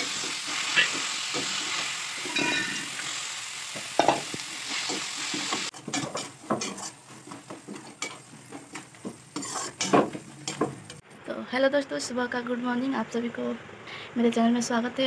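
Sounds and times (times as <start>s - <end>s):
onion masala sizzling: 0.0s - 11.0s
spatula scraping pan: 4.0s - 11.0s.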